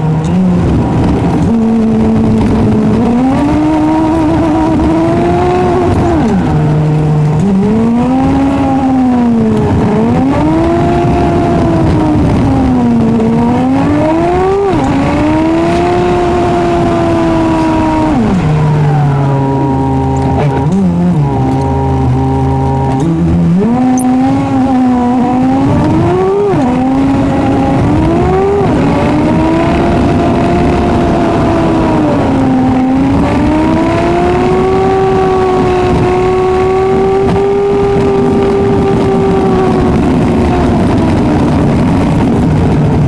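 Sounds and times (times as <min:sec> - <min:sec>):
car engine accelerating: 0:00.0 - 0:43.0.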